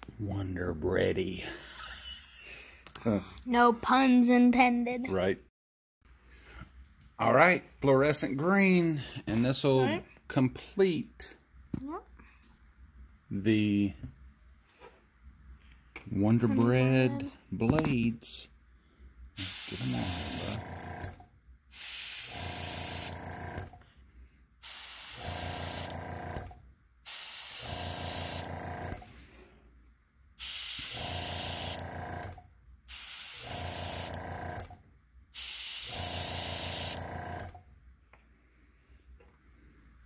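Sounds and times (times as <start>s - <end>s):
airbrush spraying hiss: 19.4s - 20.5s, 21.7s - 23.1s.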